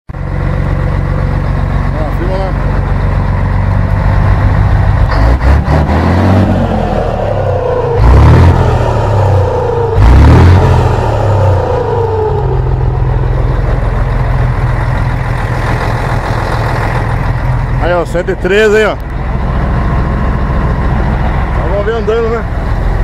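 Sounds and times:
diesel truck engine revving: 0.2s - 23.0s
turbocharger whistle: 5.9s - 14.0s.

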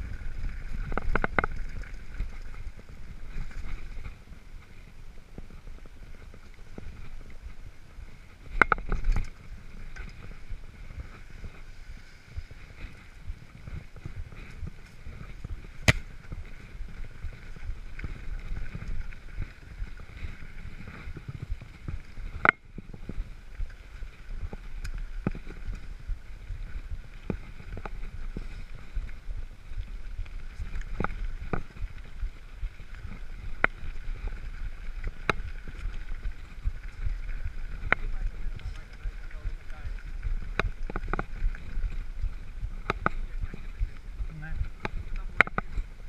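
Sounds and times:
bike knocking and rattling: 0.0s - 4.8s, 8.2s - 29.0s
bike tyres rumbling on gravel: 0.0s - 46.0s
wind on camera: 0.0s - 46.0s.

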